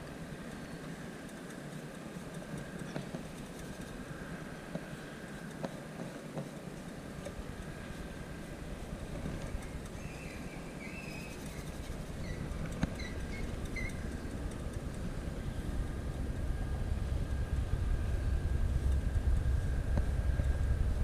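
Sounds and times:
low rumble: 11.8 - 21.0.

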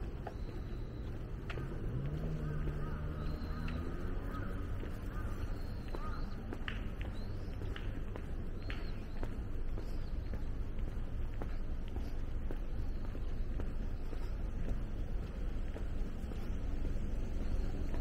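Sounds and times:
city background rumble: 0.0 - 18.0
crows calling: 1.5 - 6.8.

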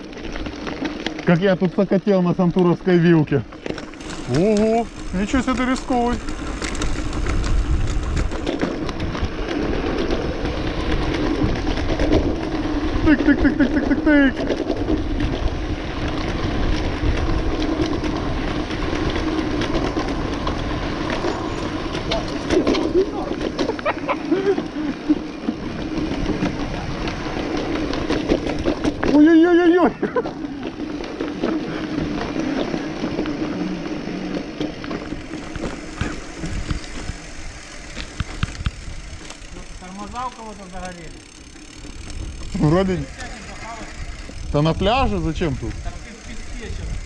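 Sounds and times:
bike tyres rumbling on concrete: 0.0 - 47.0
wind noise: 4.0 - 29.2, 29.9 - 39.8, 42.0 - 47.0
wind rushing over microphone: 4.1 - 13.1, 35.1 - 39.4, 43.8 - 47.0.

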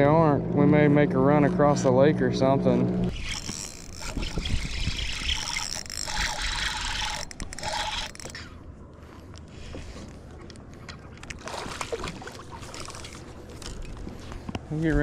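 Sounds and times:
water splashing and trickling: 3.1 - 8.6, 10.8 - 14.5.

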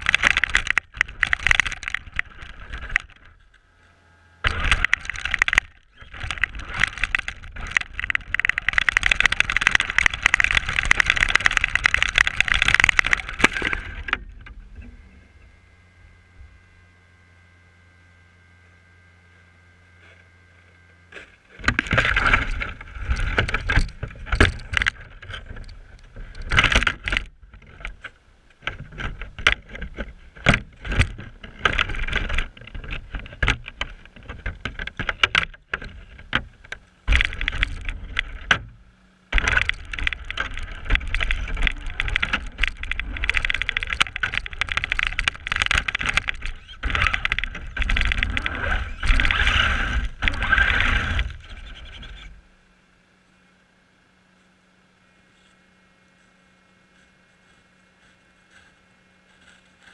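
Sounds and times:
chassis knocking and rattling: 0.0 - 3.4, 4.4 - 14.9, 21.6 - 51.7
tires churning snow: 0.0 - 3.6, 4.4 - 16.4, 21.1 - 52.5
rc car motor whine: 0.0 - 27.4, 39.3 - 52.5.

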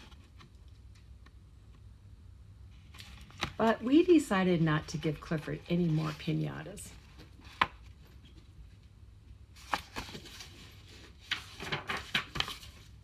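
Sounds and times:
pages rustling: 2.7 - 4.2, 4.8 - 8.8, 9.5 - 13.0.

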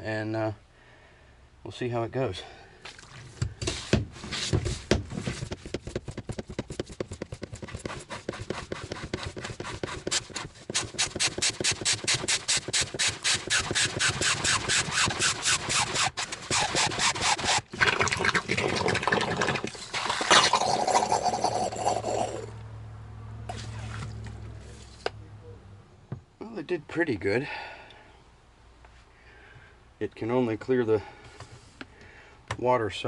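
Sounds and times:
hand pump strokes drawing water: 7.5 - 20.6.

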